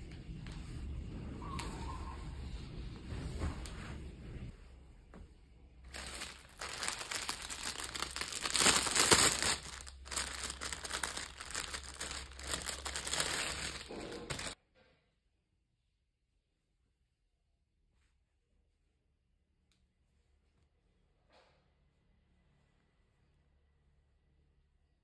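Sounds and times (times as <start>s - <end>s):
plastic bag crinkling: 5.9s - 14.6s.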